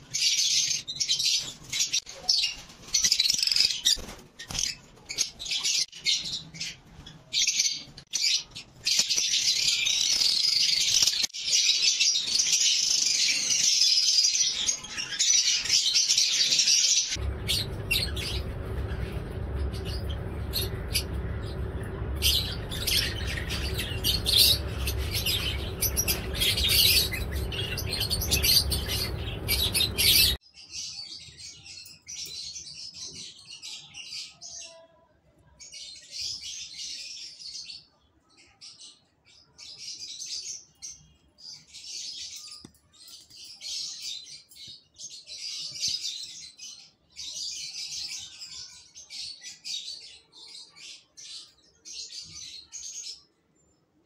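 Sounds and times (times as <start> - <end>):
birds chirping and chattering: 0.0 - 34.9.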